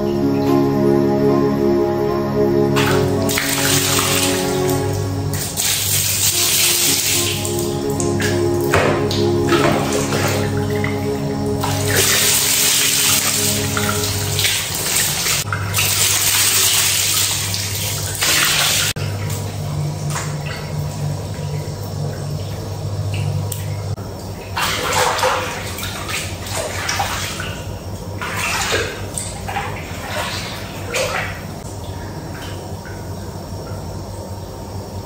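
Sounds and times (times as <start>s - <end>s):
water sloshing in bath: 2.8s - 7.8s, 11.6s - 33.3s
water splashing on tiled floor: 3.2s - 8.2s, 11.6s - 21.7s, 23.6s - 33.2s
person stepping into bath: 5.4s - 7.5s.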